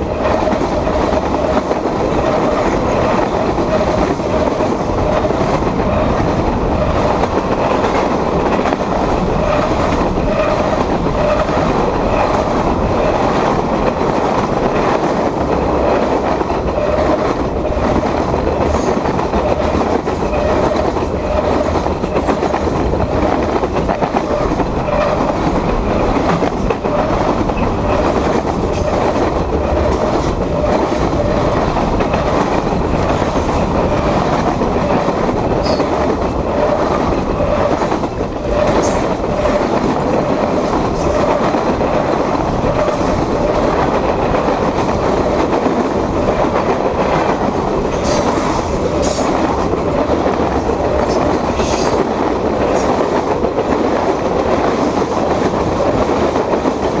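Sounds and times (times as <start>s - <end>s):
freight train wheels rumbling: 0.0s - 57.0s
wheel squeals on rail: 35.6s - 36.0s.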